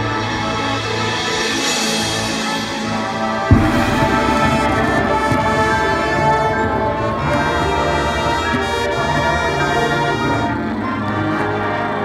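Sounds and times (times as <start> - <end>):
brass sustained chords: 2.9 - 12.0
marching band playing: 3.5 - 10.6.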